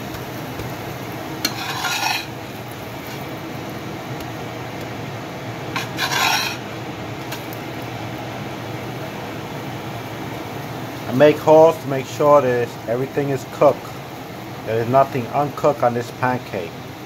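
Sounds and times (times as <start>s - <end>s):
steady hiss: 0.0s - 17.0s
spatula scraping frying pan: 1.4s - 3.3s, 5.7s - 6.7s.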